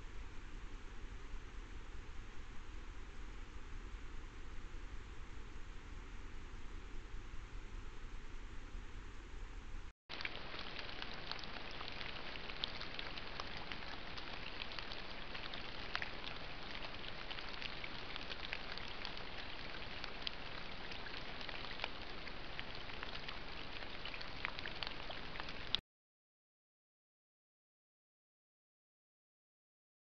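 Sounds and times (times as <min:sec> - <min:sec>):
rain pattering: 0:10.1 - 0:25.8.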